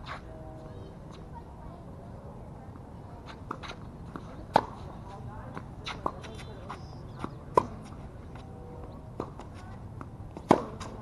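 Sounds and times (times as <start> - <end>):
racket hitting tennis ball: 3.2 - 6.4, 7.2 - 8.4, 9.2 - 11.0
tennis ball bouncing: 3.2 - 11.0.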